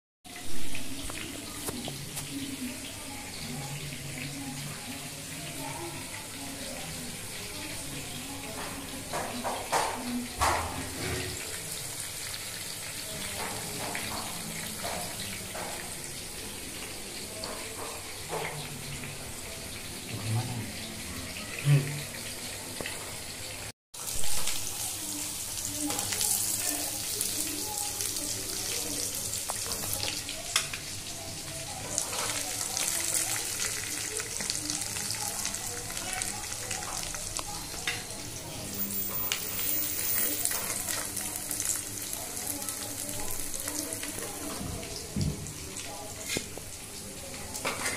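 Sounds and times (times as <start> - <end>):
oil sizzling in a pan: 0.3 - 47.9
oil popping and crackling: 28.4 - 30.9.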